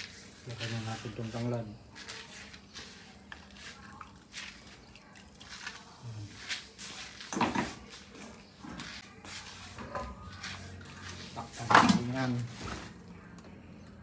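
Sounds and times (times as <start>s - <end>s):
kitchen clicks and knocks: 7.3s - 7.9s, 11.6s - 12.8s.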